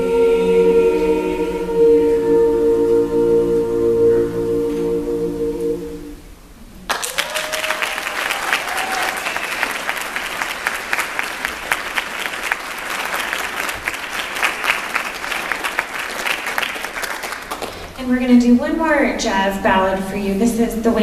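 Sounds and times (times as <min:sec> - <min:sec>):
audience applauding: 0:06.9 - 0:18.0.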